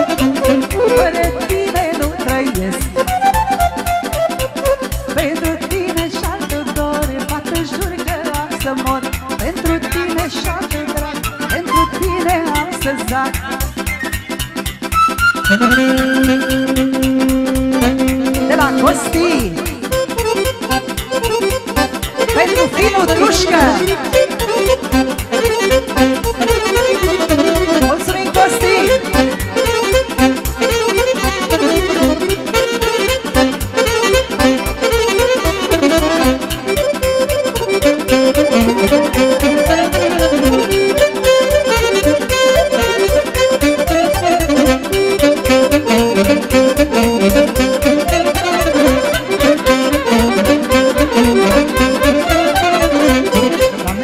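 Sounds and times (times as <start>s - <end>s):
fiddle melody: 0.0s - 6.4s, 14.9s - 54.0s
accordion: 0.0s - 54.0s
folk party music: 0.0s - 54.0s
fast bass and drum beat: 16.9s - 20.3s, 21.2s - 54.0s.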